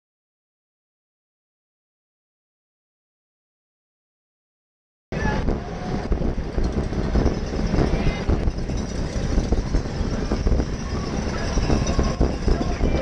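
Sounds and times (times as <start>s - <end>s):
wind buffeting microphone: 5.1s - 13.0s.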